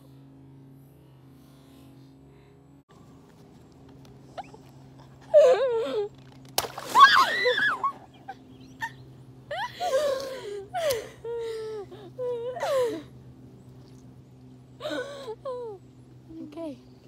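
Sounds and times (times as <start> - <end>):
water balloon bursting: 6.5 - 7.5
girls squealing and laughing: 6.9 - 10.0.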